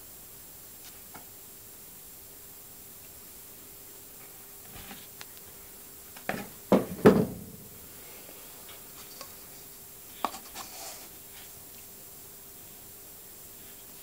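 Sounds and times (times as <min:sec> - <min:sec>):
faint steady hum: 0:00.0 - 0:14.0
cardboard drum knocks and scrapes: 0:06.3 - 0:07.6.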